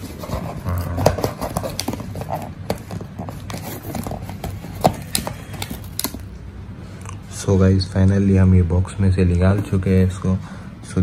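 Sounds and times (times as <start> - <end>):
cardboard rustling and scraping: 0.0 - 6.2.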